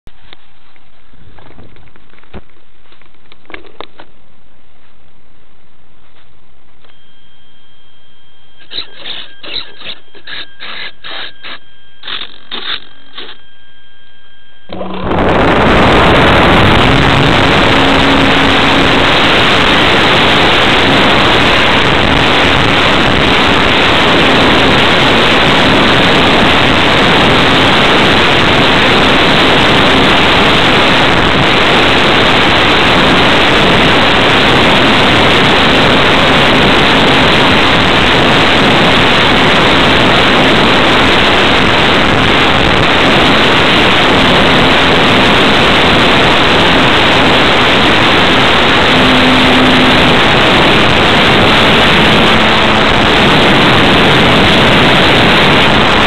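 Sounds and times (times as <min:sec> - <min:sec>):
model plane motor and propeller: 0:08.6 - 0:13.5, 0:16.4 - 0:32.1, 0:46.4 - 0:51.6.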